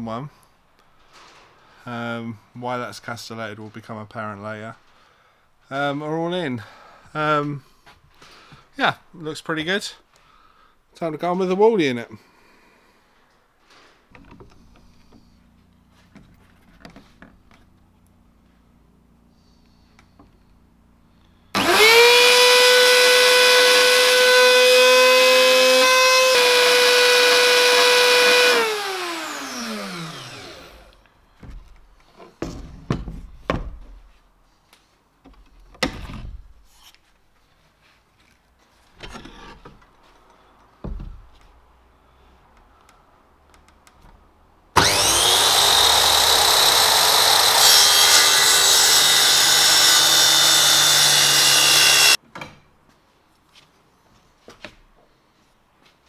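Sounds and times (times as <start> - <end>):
circular saw running: 21.6 - 31.0, 44.8 - 52.2
router whining cutting plywood: 21.6 - 31.0, 44.8 - 52.2
tool knocks and clunks: 31.4 - 34.1, 40.8 - 41.4, 52.2 - 52.8.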